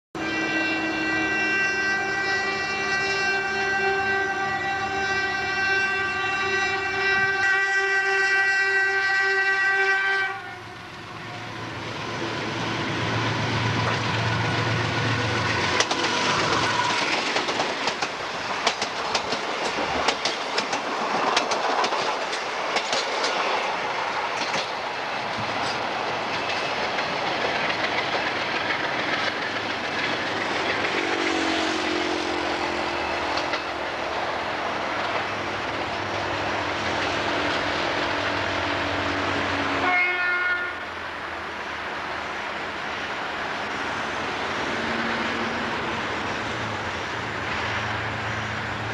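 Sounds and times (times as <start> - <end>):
locomotive air horn: 0.2 - 11.7, 39.7 - 41.0
locomotive engine rumbling: 0.8 - 48.9
train wheels clattering over rail joints: 13.4 - 32.0, 33.0 - 38.6.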